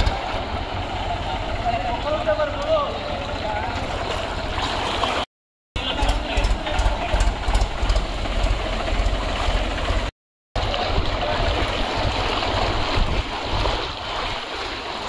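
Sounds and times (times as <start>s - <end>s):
tractor diesel engine running: 0.0s - 5.2s, 5.8s - 10.1s
water rushing: 0.0s - 15.0s.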